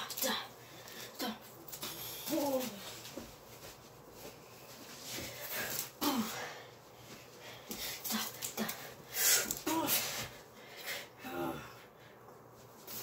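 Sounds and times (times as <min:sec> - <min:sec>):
person grunting: 0:11.2 - 0:11.8.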